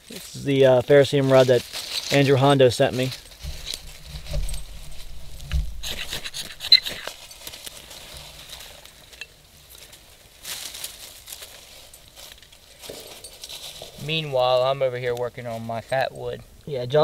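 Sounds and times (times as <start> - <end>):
brief rustle: 1.3 - 14.2
ferro rod scraped with striker: 5.8 - 7.2.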